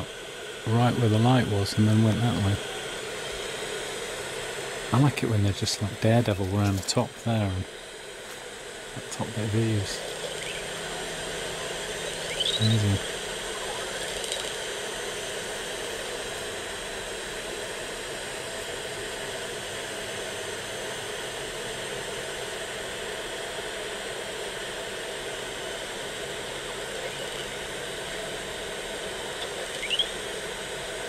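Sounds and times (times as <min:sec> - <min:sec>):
steady hiss: 0:00.0 - 0:13.7.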